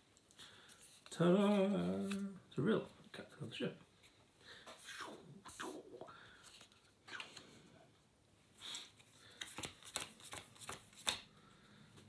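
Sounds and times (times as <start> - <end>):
playing cards sliding and tapping: 8.7 - 11.3.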